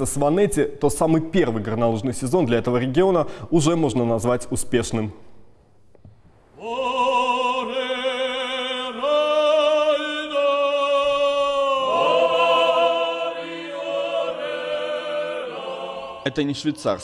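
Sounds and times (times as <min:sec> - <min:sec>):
choir singing chant-like notes: 0:06.6 - 0:17.0.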